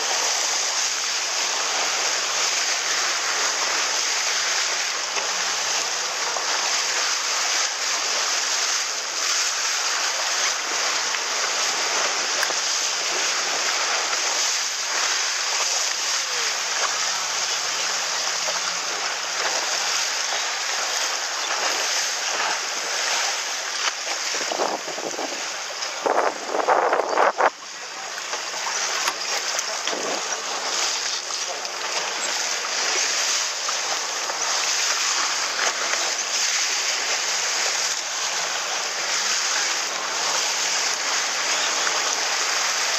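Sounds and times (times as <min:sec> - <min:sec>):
water slapping boat hull: 0:00.0 - 0:42.9
water splashes: 0:00.0 - 0:42.9
wind buffeting microphone: 0:24.1 - 0:27.6.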